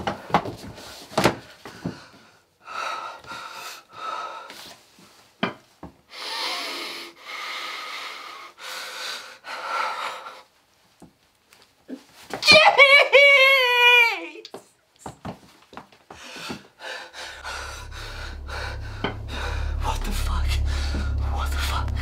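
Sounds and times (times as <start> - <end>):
man breathing heavily: 1.6 - 4.6, 16.1 - 19.8.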